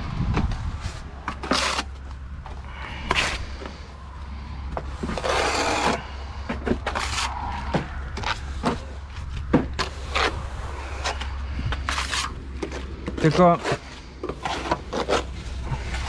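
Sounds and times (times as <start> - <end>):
steady low hum: 0.0 - 16.0
hand tool scraping on wall: 5.0 - 6.2.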